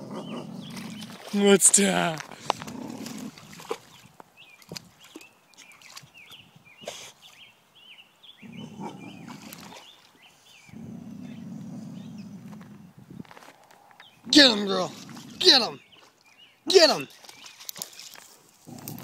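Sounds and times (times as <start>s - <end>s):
dog growling low: 0.0s - 1.2s, 2.5s - 3.8s, 8.4s - 9.6s, 10.7s - 13.0s, 14.9s - 15.4s, 18.7s - 19.0s.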